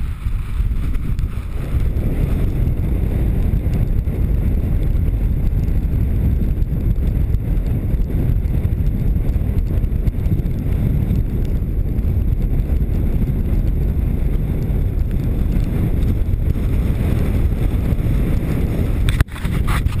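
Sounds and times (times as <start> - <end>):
wind buffeting microphone: 0.0 - 20.0.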